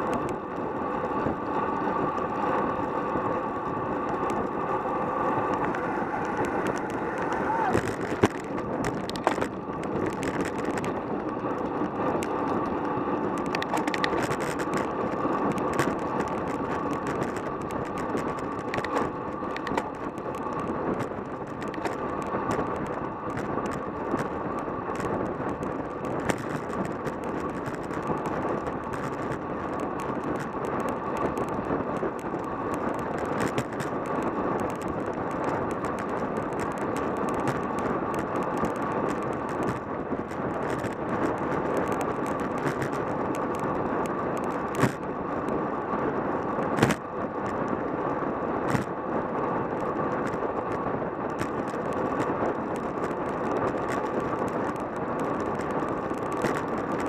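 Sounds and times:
bike tyre noise: 0.0 - 57.0
wind over microphone: 0.0 - 57.0
small rattling clicks: 5.4 - 43.7.

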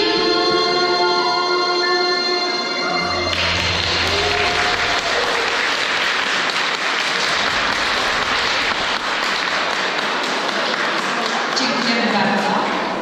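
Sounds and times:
audience applauding: 3.2 - 12.2.

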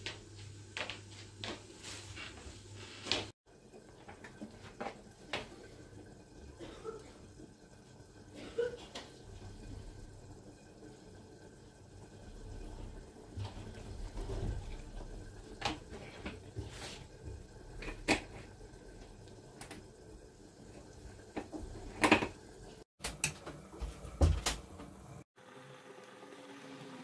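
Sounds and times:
kitchen clicks and knocks: 21.4 - 22.4.

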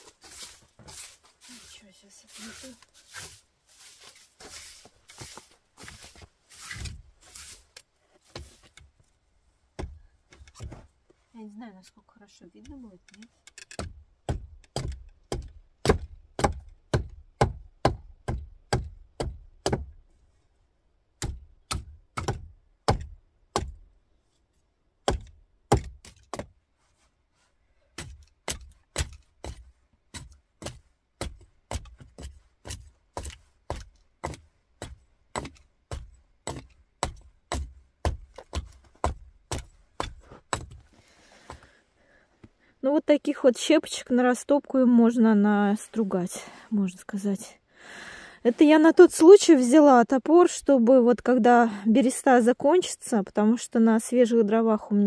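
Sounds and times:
hatchet knocking on wood: 13.8 - 19.9.

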